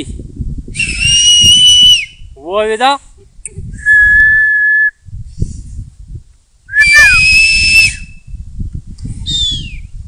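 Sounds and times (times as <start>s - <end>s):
loud finger whistle: 0.8s - 2.2s, 3.8s - 5.0s, 6.7s - 8.3s, 9.3s - 9.9s.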